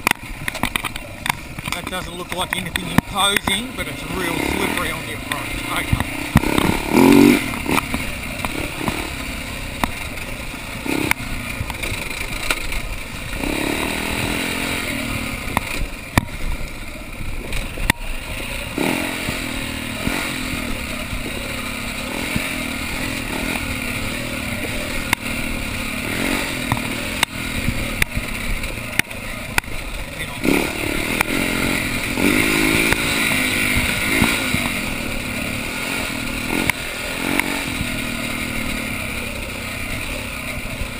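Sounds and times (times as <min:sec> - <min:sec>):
bike knocks and rattles: 0:00.0 - 0:03.6, 0:05.4 - 0:14.7
dirt bike engine revving: 0:00.0 - 0:40.9.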